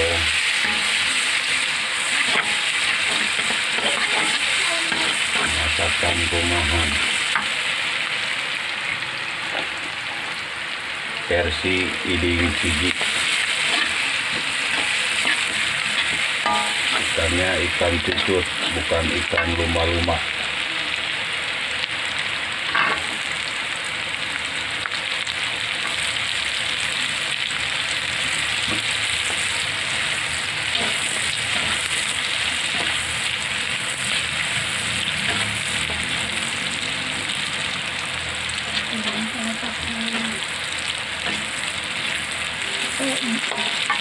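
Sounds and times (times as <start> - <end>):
food sizzling in hot oil: 0.0 - 44.0
metal spatula scraping a pan: 0.2 - 7.6, 12.7 - 17.2, 28.6 - 33.2, 33.8 - 36.1, 41.2 - 44.0.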